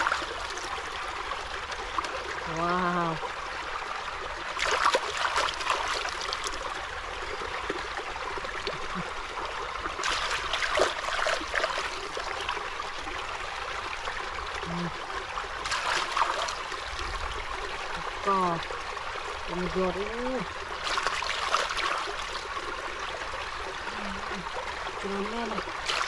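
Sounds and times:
shallow water trickling: 0.0s - 26.0s
hands splashing water: 15.6s - 16.6s.

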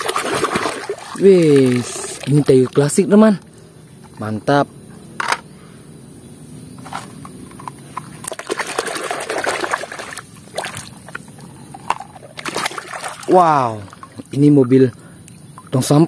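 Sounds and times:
water sloshing and splashing: 0.0s - 3.0s, 6.9s - 16.0s.

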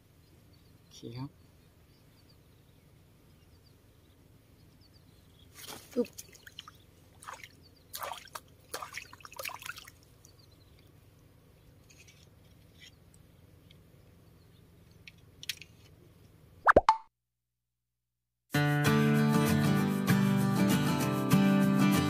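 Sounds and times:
water splashes and drips: 5.6s - 10.4s.

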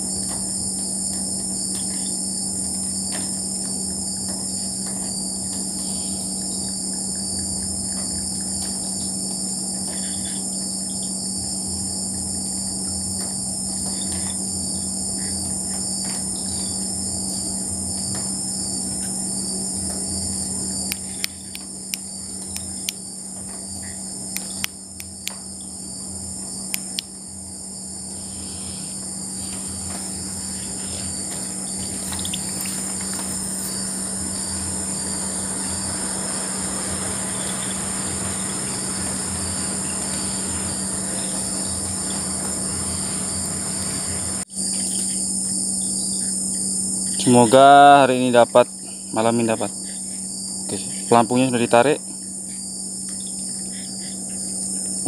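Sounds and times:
crickets and insects trilling: 0.0s - 55.0s
steady low drone: 19.7s - 44.5s
sharp clicks: 20.9s - 23.0s, 24.3s - 25.4s, 26.7s - 27.1s.

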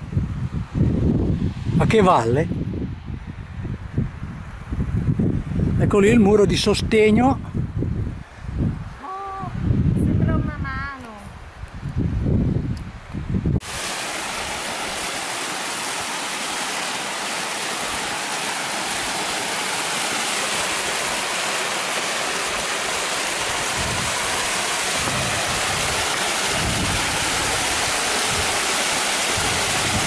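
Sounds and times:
waterfall rushing: 13.6s - 30.0s.

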